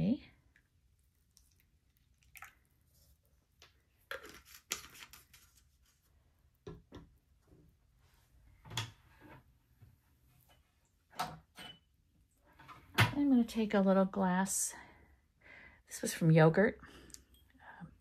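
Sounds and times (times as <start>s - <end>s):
liquid pouring into cup: 1.3s - 2.8s.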